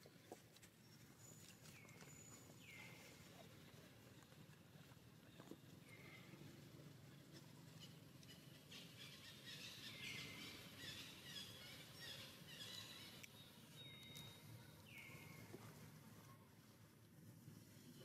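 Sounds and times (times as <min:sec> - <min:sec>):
bird chirps: 0:07.8 - 0:15.5.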